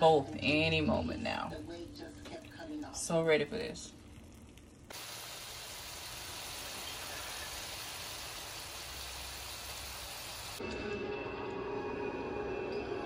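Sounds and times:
food hissing on stove: 0:04.9 - 0:10.6.

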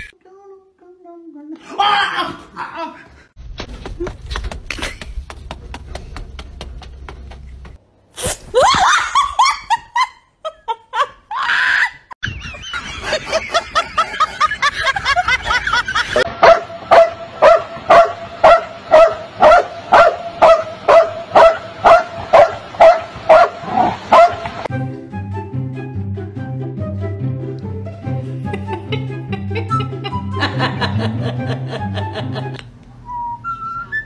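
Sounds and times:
dog barking: 0:16.4 - 0:24.4.

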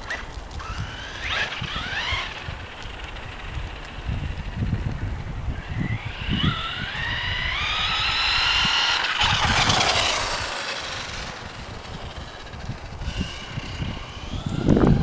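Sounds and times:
electric motor whining: 0:00.0 - 0:15.0.

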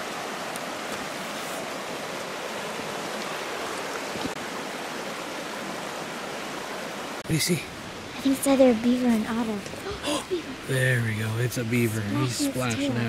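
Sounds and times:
river flowing over gravel: 0:00.0 - 0:13.0.

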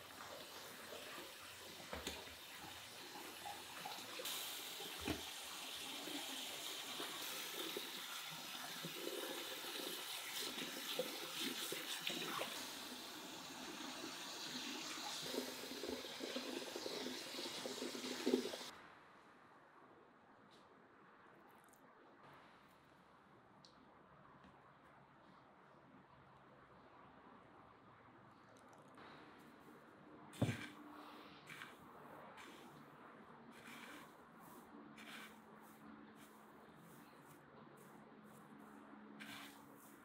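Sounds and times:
tap water running into bowl: 0:00.0 - 0:06.0.

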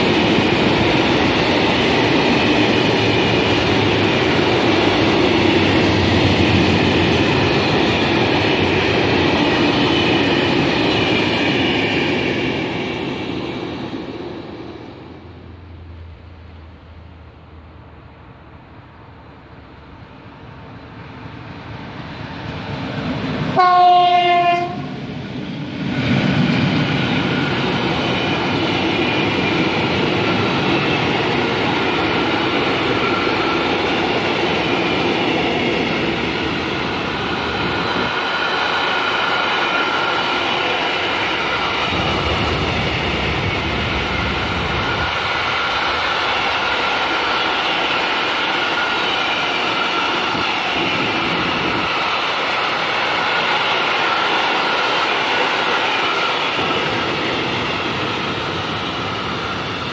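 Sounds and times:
train wheels clattering on rails: 0:00.0 - 0:14.8, 0:20.7 - 0:59.9
train horn blast: 0:23.6 - 0:25.0.

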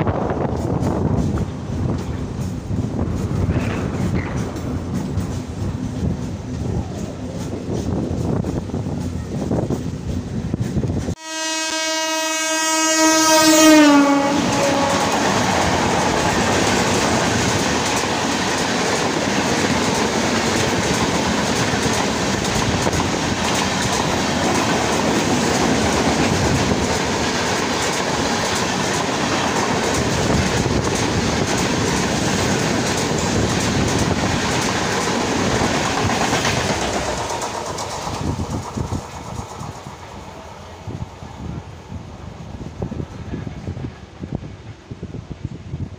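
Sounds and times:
train wheels roaring and clattering: 0:00.0 - 0:11.2, 0:12.6 - 0:45.9
locomotive horn: 0:11.2 - 0:15.7.

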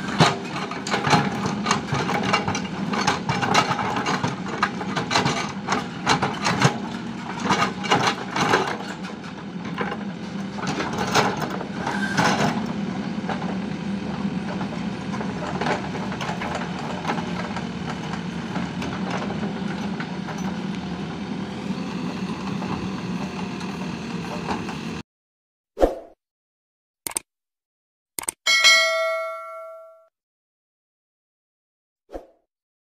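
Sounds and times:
backhoe digging gravel: 0:00.0 - 0:25.0
diesel engine running: 0:00.0 - 0:25.0
click: 0:27.0 - 0:27.3, 0:28.2 - 0:28.4.

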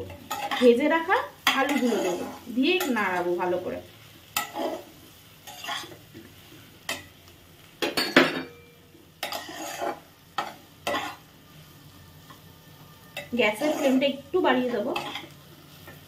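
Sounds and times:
spatula scraping a pot: 0:01.5 - 0:02.4, 0:05.5 - 0:06.0, 0:09.2 - 0:11.2, 0:13.2 - 0:14.2.

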